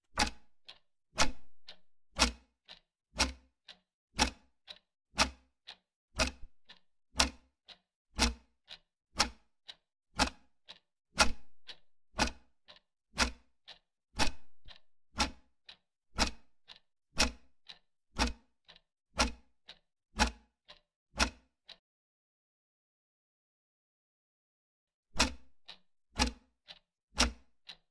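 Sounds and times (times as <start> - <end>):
clock ticking: 0.1 - 21.8, 25.2 - 27.8.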